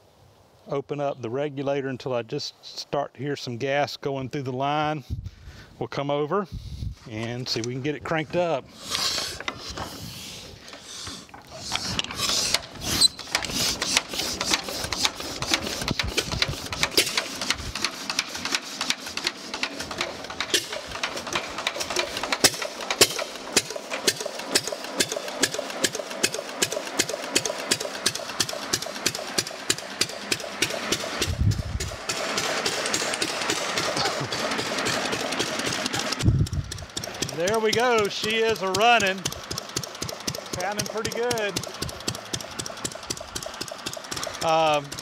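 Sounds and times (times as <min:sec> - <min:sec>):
engine cranked by hand: 0:07.2 - 0:45.0
engine clattering: 0:10.5 - 0:45.0.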